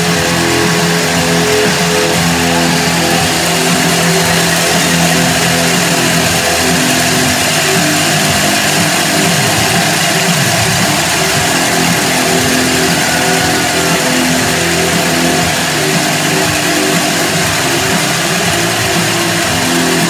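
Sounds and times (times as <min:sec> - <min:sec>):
cowbells ringing: 0:00.0 - 0:20.0
crowd cheering: 0:00.0 - 0:20.0.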